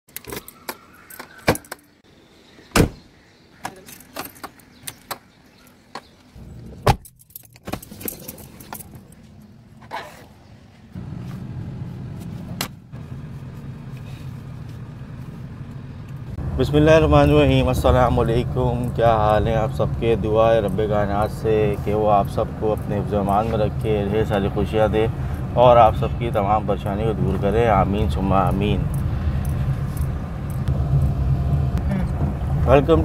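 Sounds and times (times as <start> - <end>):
car keys jangling: 3.8 - 5.9, 6.9 - 10.1, 18.3 - 25.5, 27.7 - 30.7
car engine running: 10.6 - 33.0.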